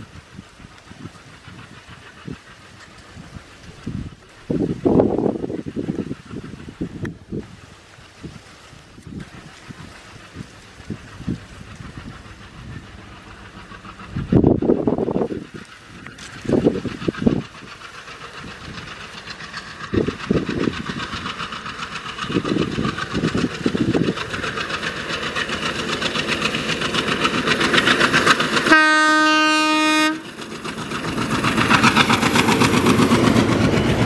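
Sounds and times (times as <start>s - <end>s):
diesel locomotive engine chugging: 0.0s - 34.0s
train horn blast: 28.7s - 30.3s.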